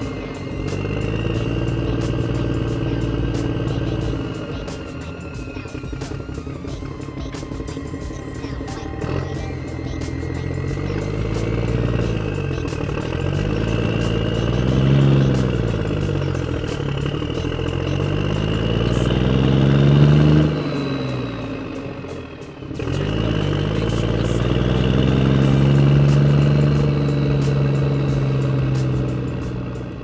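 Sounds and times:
motor running: 0.0 - 30.0.

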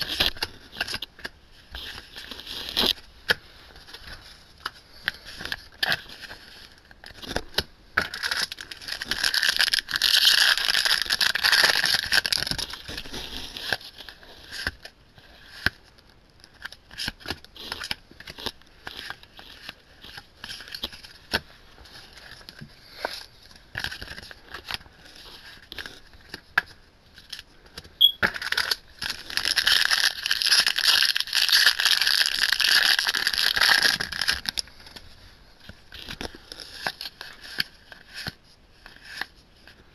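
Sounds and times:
foil wrappers crinkling and tearing: 3.9 - 15.0, 28.2 - 39.4.

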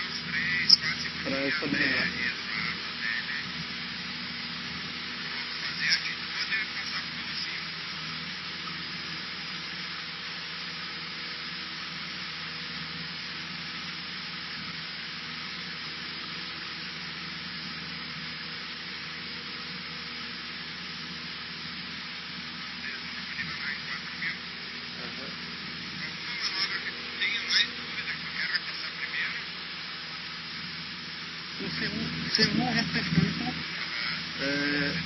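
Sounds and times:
light aircraft engine droning: 0.0 - 35.0.

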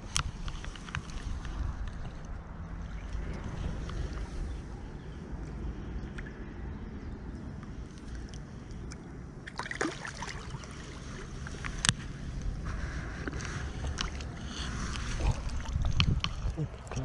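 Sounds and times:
wind rumble on microphone: 0.0 - 9.5, 10.4 - 17.0
water splashing and sloshing: 0.0 - 17.0.

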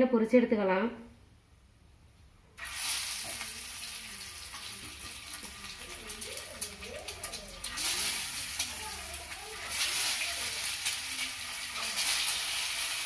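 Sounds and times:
oil crackling and spitting: 2.6 - 13.0
oil sizzling in frying pan: 2.6 - 13.0.

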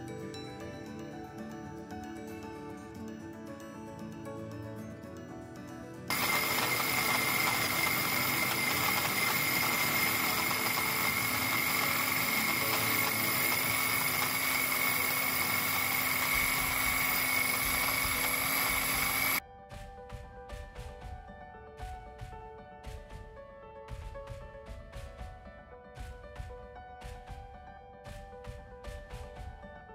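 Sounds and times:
electric chopper motor whining: 6.1 - 19.4.

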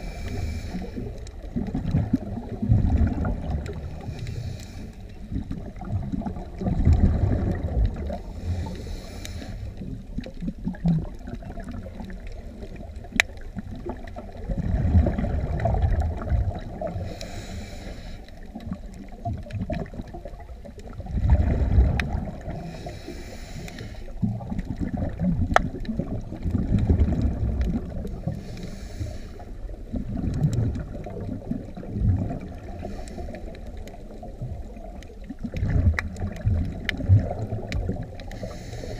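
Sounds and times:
regulator inhale hiss: 0.0 - 1.2, 4.0 - 5.3, 8.2 - 9.8, 16.9 - 18.5, 22.5 - 24.2, 28.2 - 29.7, 32.6 - 33.8, 38.2 - 38.9
exhaled bubbles rumbling: 0.0 - 38.9.

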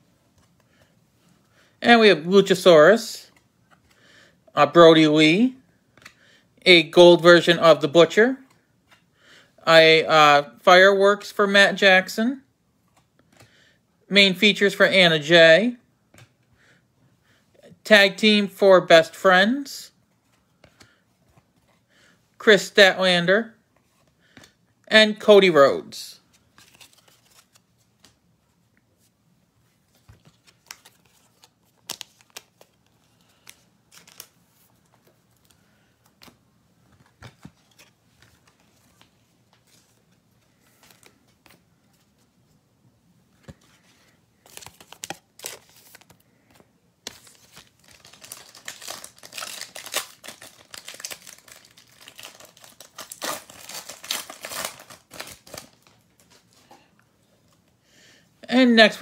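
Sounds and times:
wrapper crinkling and tearing: 44.4 - 46.2, 47.1 - 56.6.

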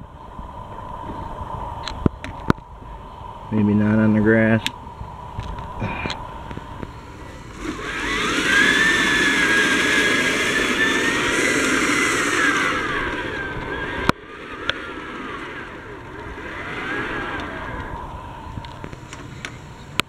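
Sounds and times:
toy electric motor whine: 6.8 - 20.0.

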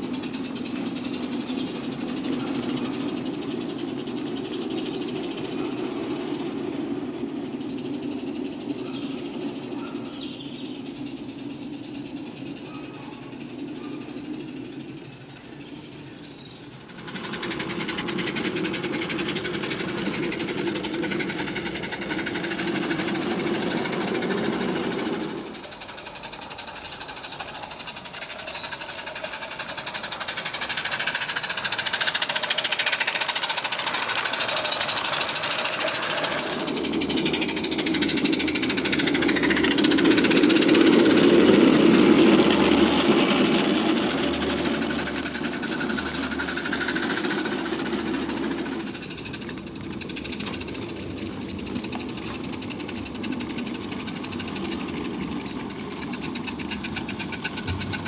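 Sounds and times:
steam locomotive chuffing: 0.0 - 58.0
train rumbling on track: 0.0 - 58.0
steam hiss: 16.3 - 50.8.

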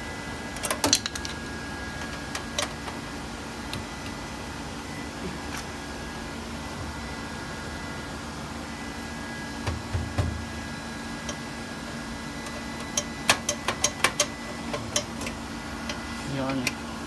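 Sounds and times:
steady machine hum: 0.0 - 17.0
low knocks on metal cover: 9.6 - 10.4.

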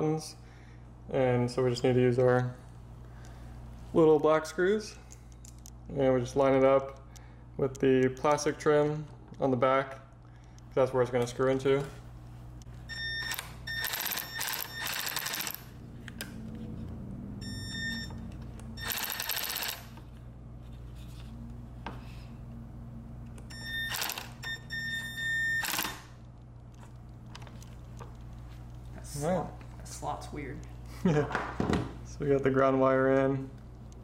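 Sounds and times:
electric screwdriver whining: 23.8 - 24.5.

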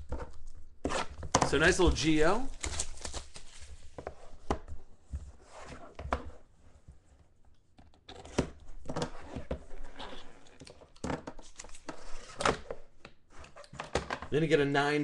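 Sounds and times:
packaging rustling: 1.5 - 4.0.

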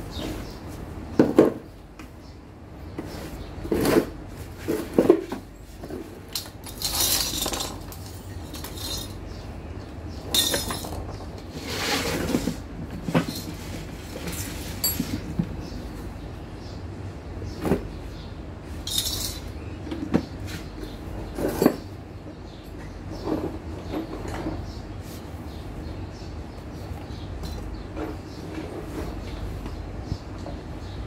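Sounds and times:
knocks and clinks: 10.3 - 11.3, 14.7 - 15.5, 18.8 - 19.4.

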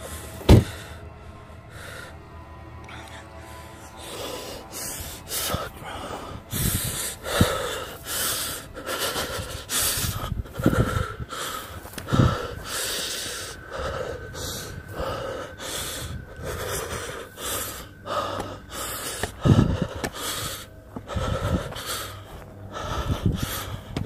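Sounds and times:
man breathing hard: 0.0 - 24.0
low thuds: 0.4 - 1.0.

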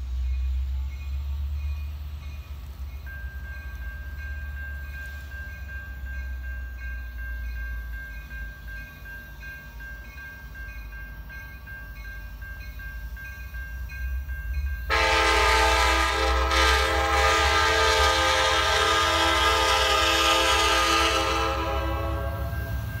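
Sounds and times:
diesel locomotive rumble: 0.0 - 23.0
crossing bell dinging: 0.2 - 23.0
train air horn chord: 14.9 - 22.7.

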